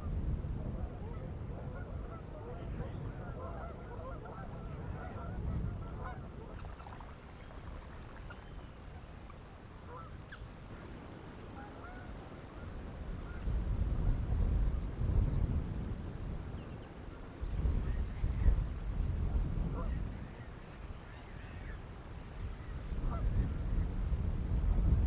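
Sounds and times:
wind rumble on microphone: 0.0 - 25.0
waterbirds honking: 6.0 - 10.7, 11.4 - 12.8.

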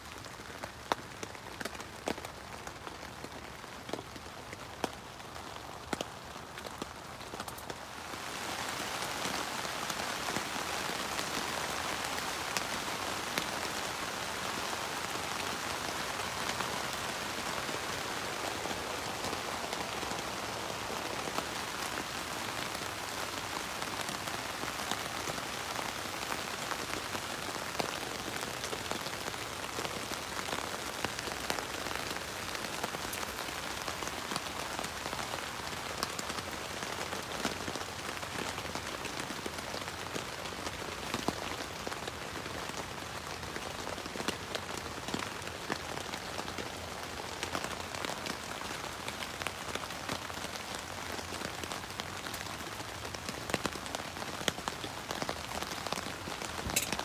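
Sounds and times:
rain on tent fabric: 0.0 - 57.0
sharp raindrop ticks: 56.4 - 57.0.

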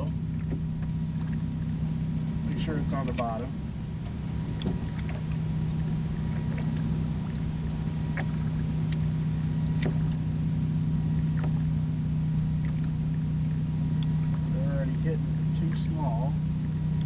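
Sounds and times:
boat motor humming: 0.0 - 17.0
faint clicks: 2.4 - 3.3.

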